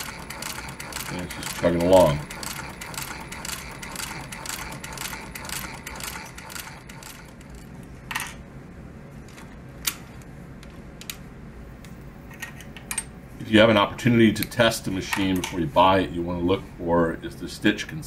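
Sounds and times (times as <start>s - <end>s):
sewing machine stitching leather: 0.0s - 7.7s.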